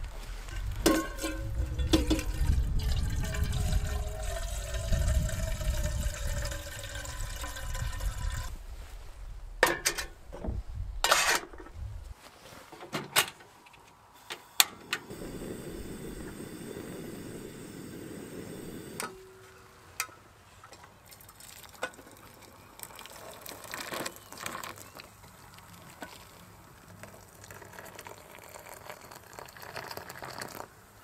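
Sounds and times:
water pouring into metal kettle: 0.8 - 8.5, 21.1 - 24.9, 27.0 - 30.7
gas burner hissing: 15.0 - 19.2.

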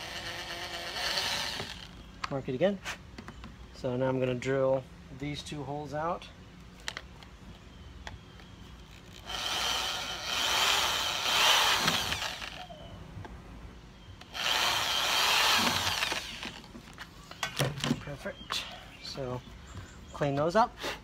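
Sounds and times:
electric drill boring plastic: 0.0 - 1.9, 9.2 - 12.6, 14.2 - 16.6.

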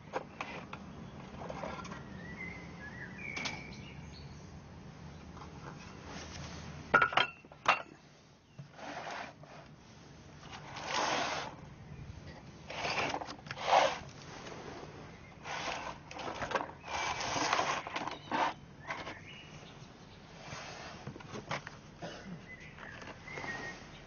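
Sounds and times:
cardboard tray scraping on wood: 8.6 - 9.7, 10.5 - 11.6, 12.7 - 19.3.

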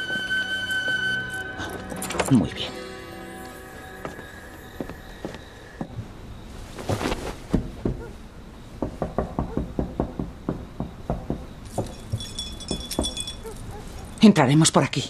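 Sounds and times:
knuckles knocking on a wall: 8.8 - 11.9.

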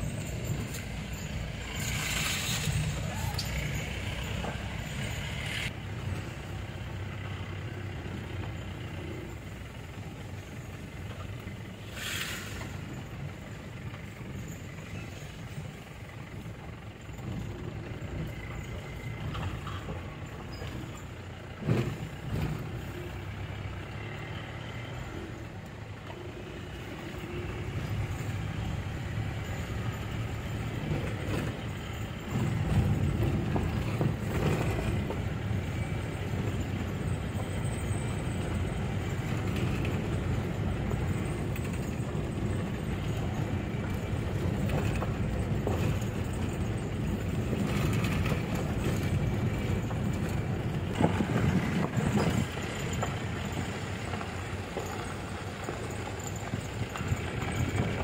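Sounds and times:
vehicle engine and road rumble: 0.0 - 58.0.

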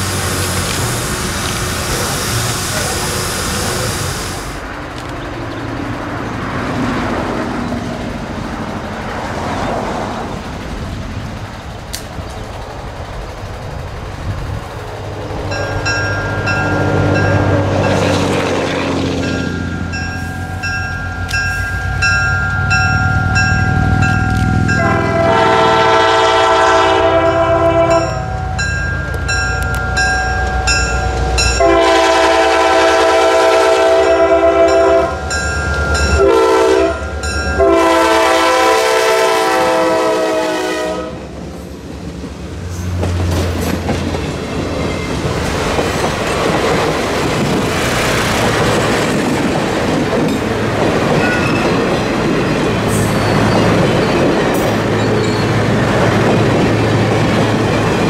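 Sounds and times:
wheels clicking over rail joints: 0.0 - 25.3, 27.2 - 32.0, 41.3 - 58.0
diesel locomotive engine rumbling: 0.0 - 58.0
multi-note train horn blasts: 24.7 - 28.4, 31.4 - 35.4, 36.1 - 41.3.

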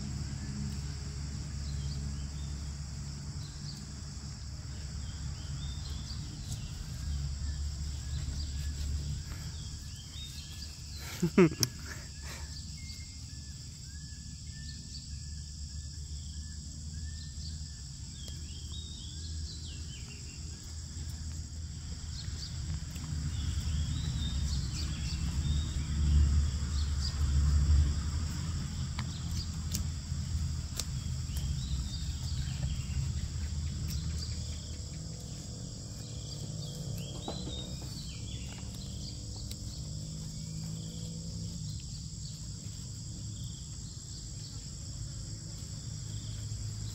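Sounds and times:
insects droning: 0.0 - 46.9
bird chirps: 30.8 - 41.0.

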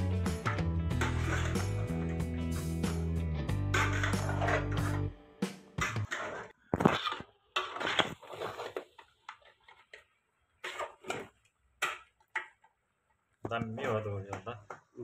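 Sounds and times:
metal spatula scraping a pot: 0.9 - 2.6, 3.5 - 5.1, 5.8 - 9.9, 10.6 - 12.0.

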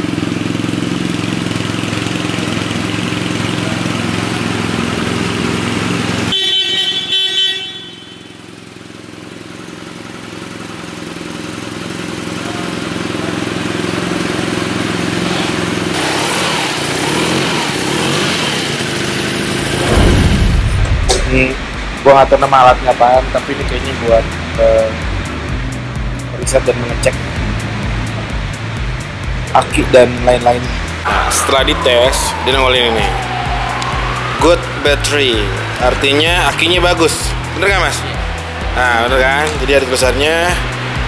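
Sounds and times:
motorcycle engine idling: 0.0 - 15.9.

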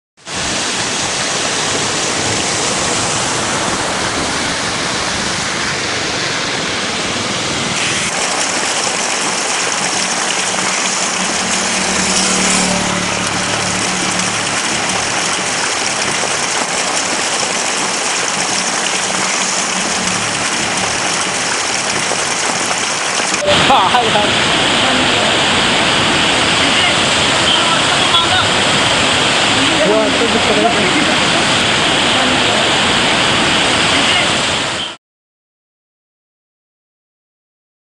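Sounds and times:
rain and floodwater rushing: 0.2 - 35.0
vehicles driving through water: 0.3 - 35.0
low hum: 9.0 - 23.5.

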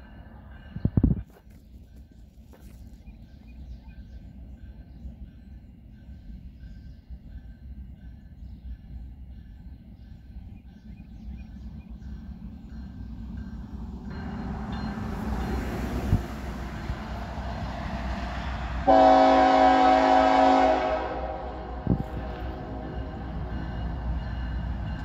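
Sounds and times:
train rumble: 0.0 - 25.0
locomotive air horn blast: 18.8 - 22.8.

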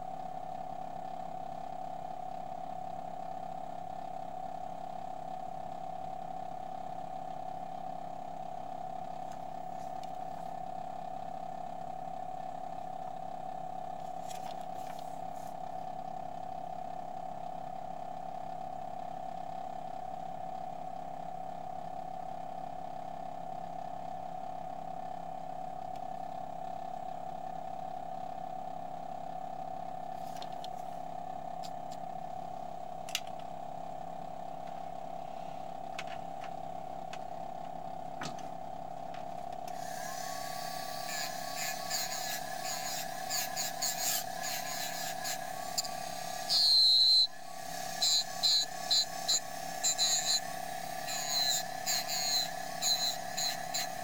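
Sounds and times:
steady machine hum: 0.0 - 17.3, 29.8 - 54.0
engraving handpiece buzzing: 39.7 - 54.0.

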